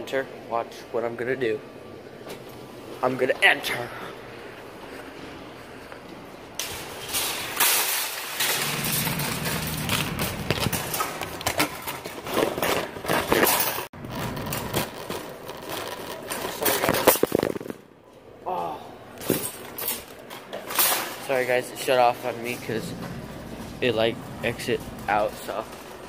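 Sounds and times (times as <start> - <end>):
metal shopping cart rattling: 6.6 - 17.3, 20.7 - 26.0.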